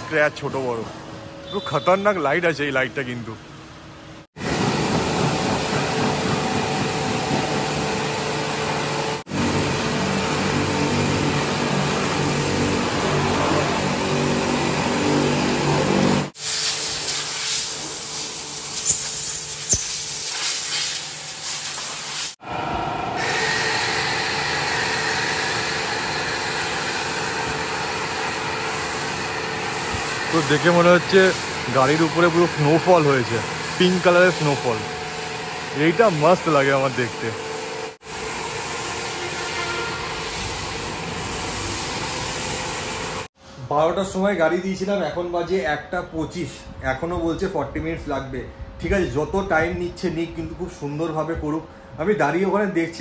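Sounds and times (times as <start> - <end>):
pressure washer motor hum: 4.4 - 43.3
water spray hissing: 16.3 - 22.4, 26.4 - 37.3, 38.0 - 43.3.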